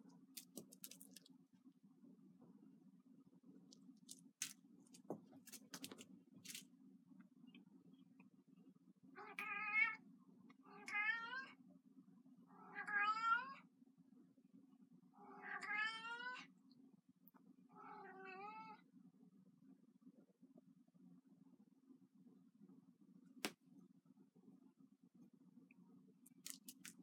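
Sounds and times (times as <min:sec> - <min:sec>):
cat meowing: 0:15.2 - 0:16.4, 0:17.8 - 0:18.8.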